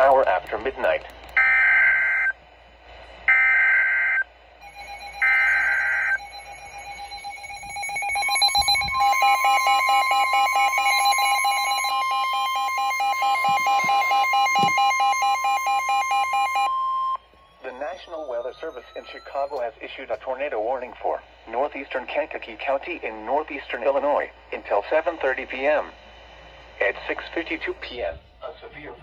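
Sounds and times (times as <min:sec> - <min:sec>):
steady warning tone: 0:00.0 - 0:28.8
fast-pulsing alarm beeps: 0:01.4 - 0:02.4, 0:03.3 - 0:25.9
digital alert screeches: 0:04.7 - 0:14.7, 0:17.5 - 0:19.6.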